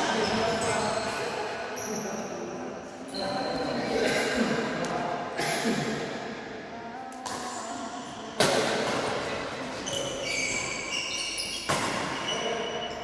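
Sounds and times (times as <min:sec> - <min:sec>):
shoes squeaking on court: 0:09.8 - 0:13.0.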